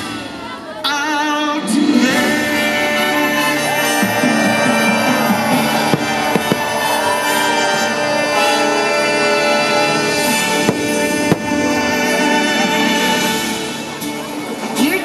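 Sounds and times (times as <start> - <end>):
fireworks show music: 0.0 - 15.0
firework shells bursting: 5.8 - 7.1, 10.6 - 11.9.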